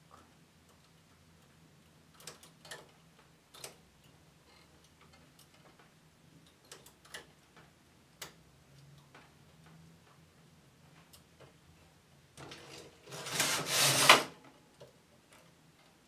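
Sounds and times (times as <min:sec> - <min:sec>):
faint steady hum: 0:00.0 - 0:13.4
knitting machine needles clicking: 0:00.1 - 0:04.2, 0:04.8 - 0:10.2.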